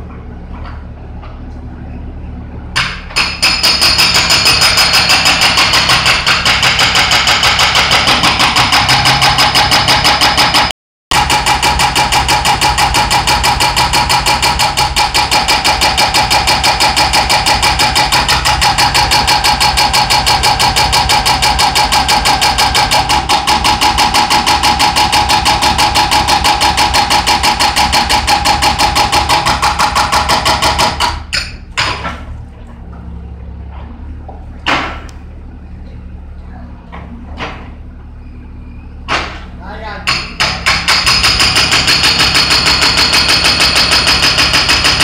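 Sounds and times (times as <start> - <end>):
diesel engine running: 0.0 - 3.2, 4.1 - 45.0
hydraulic breaker hammering concrete: 2.8 - 32.3, 39.1 - 45.0
knocks: 39.1 - 39.5.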